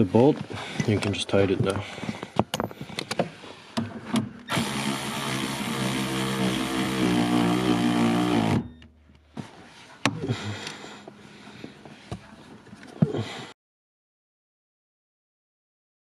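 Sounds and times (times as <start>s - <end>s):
power tool motor running: 4.5s - 8.9s.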